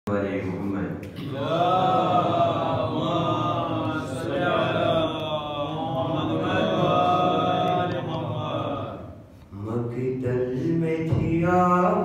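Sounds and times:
man chanting: 1.2 - 12.0.

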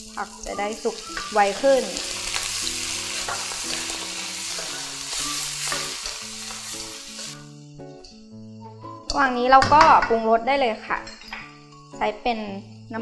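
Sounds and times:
food sizzling in a wok: 0.0 - 7.6
soft background music: 0.0 - 13.0.

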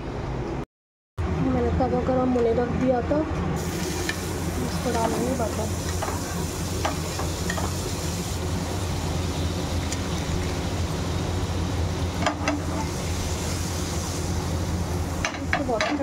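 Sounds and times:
butter sizzling on hot pan: 3.6 - 16.0.

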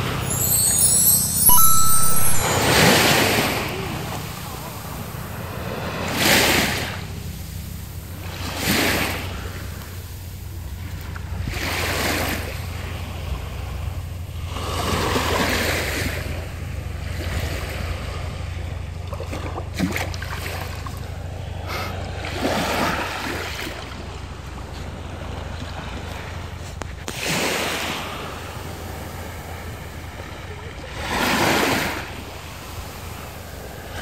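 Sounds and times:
small waves washing on sand: 22.1 - 34.0.

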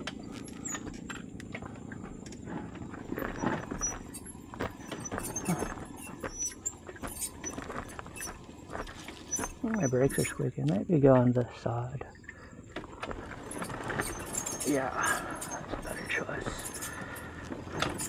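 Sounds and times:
motorcycle low hum: 0.0 - 10.5, 12.4 - 18.0
high brake squeaks: 0.1 - 1.1, 2.6 - 10.4, 13.2 - 18.0.

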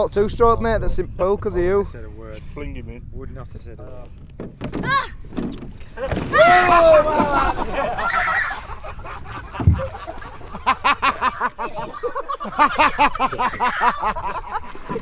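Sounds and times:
men laughing: 6.0 - 15.0.

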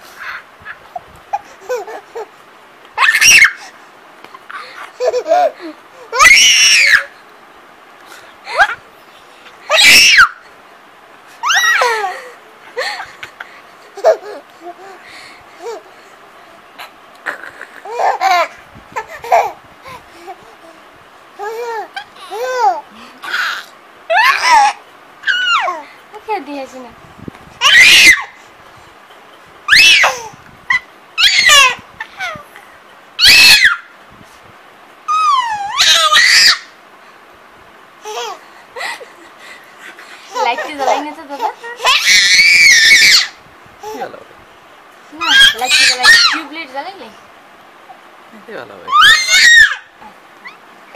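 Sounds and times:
baby giggling: 0.2 - 2.3, 4.3 - 5.8, 11.4 - 15.0, 16.8 - 20.8, 21.4 - 25.8, 38.0 - 42.1
baby squealing: 3.0 - 3.7, 6.1 - 7.2, 9.7 - 10.4, 11.4 - 12.0, 21.4 - 25.8, 27.6 - 28.4, 29.7 - 32.4, 33.2 - 33.9, 35.1 - 36.8, 40.3 - 44.0, 45.2 - 46.5, 48.9 - 50.6.

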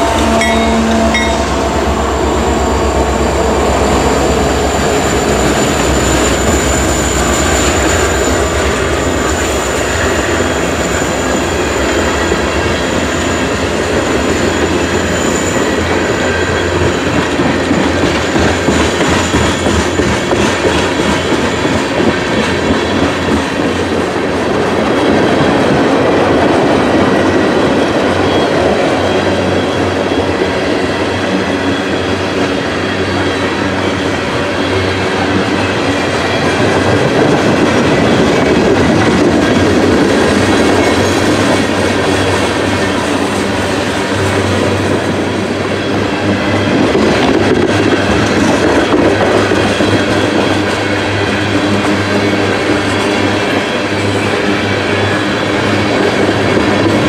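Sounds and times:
low hum: 0.0 - 9.4
train wheels clicking over joints: 0.0 - 57.0.

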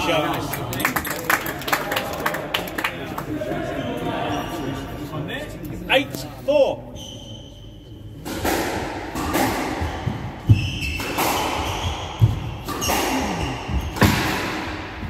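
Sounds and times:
sneakers squeaking on wooden floor: 6.9 - 8.0, 9.2 - 14.2
squash ball hitting rackets and walls: 8.2 - 15.0.

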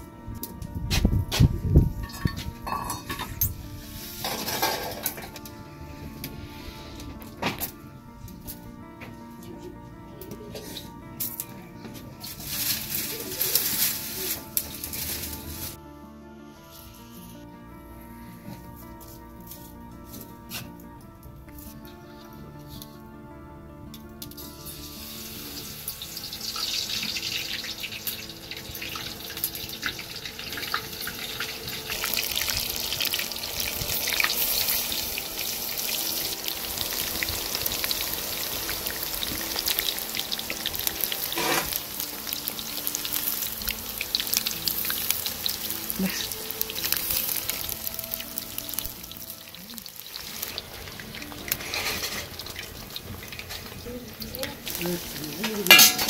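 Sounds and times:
potatoes sizzling in hot oil: 3.4 - 5.4, 12.2 - 15.8, 24.3 - 56.0.

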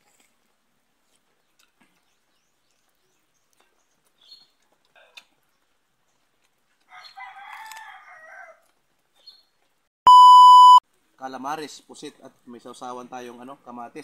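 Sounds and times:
rooster crowing: 6.9 - 8.6.

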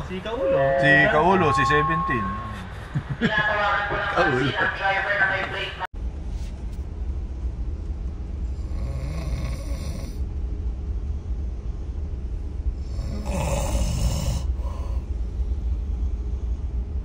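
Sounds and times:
steady low hum: 0.0 - 17.0
person snoring: 12.9 - 15.0.

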